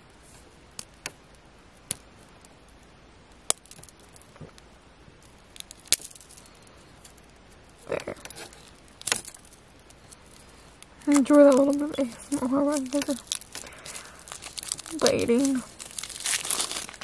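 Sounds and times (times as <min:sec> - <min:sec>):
plastic wrap crinkling: 0:05.2 - 0:17.0.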